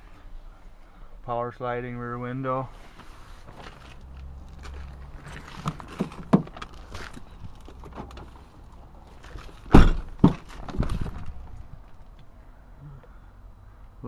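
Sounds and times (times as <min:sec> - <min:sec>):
car door clunk: 0:09.6 - 0:11.3
knocks on truck body: 0:09.7 - 0:10.8.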